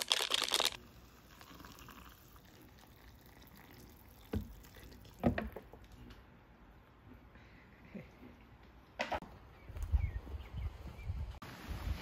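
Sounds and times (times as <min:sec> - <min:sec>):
hot water pouring from a kettle: 0:00.1 - 0:05.2.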